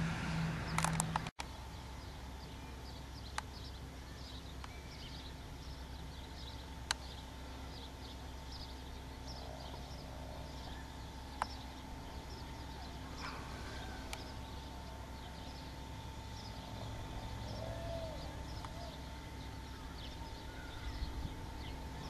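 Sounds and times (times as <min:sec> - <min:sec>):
birds chirping: 0:00.0 - 0:22.0
distant fire truck pump engine hum: 0:00.0 - 0:22.0
sharp clicks: 0:00.7 - 0:01.5, 0:18.6 - 0:18.8.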